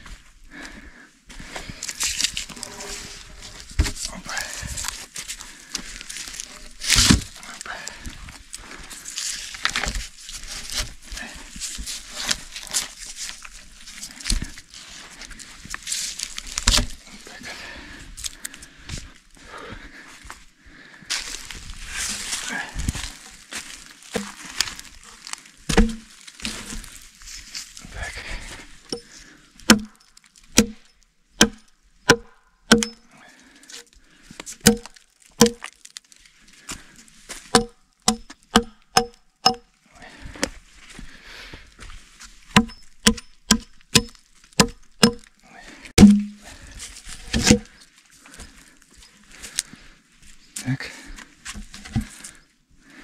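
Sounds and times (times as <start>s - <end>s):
heavy thud: 25.7s - 26.1s, 46.0s - 46.5s
hammer knocking on log: 37.6s - 39.6s, 42.6s - 45.2s, 46.0s - 46.4s.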